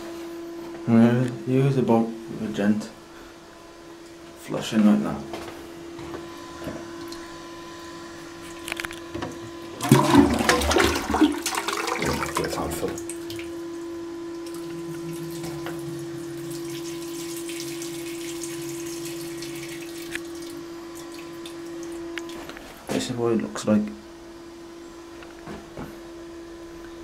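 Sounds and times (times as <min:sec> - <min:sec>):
toilet flushing: 0:09.3 - 0:22.4.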